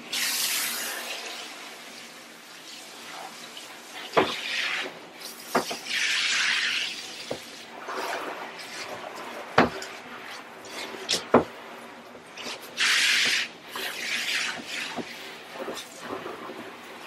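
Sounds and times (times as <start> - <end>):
hiss of shower spray: 0.0 - 2.2, 12.4 - 16.6
shower head knocking against tub: 5.5 - 5.8.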